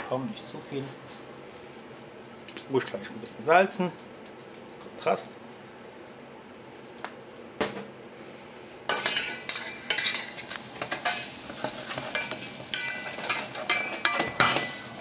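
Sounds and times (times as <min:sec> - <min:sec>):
sizzling in a saucepan: 0:00.0 - 0:07.4, 0:08.1 - 0:15.0
metal spoon scraping pan: 0:08.9 - 0:14.8.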